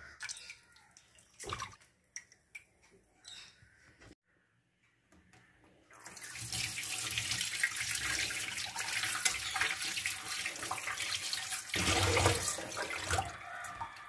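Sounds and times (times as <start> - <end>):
water splashing: 0.1 - 2.7, 6.0 - 13.6.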